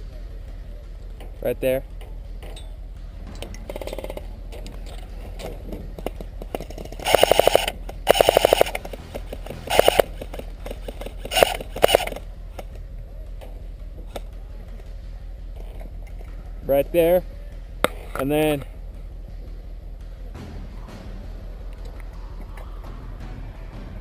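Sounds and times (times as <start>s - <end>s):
airsoft rifle automatic bursts: 6.7s - 12.2s.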